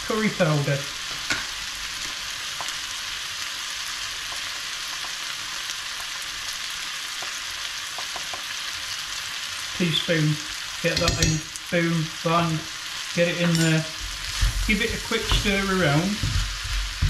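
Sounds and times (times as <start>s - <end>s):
vegetables sizzling in oil: 0.0s - 17.0s.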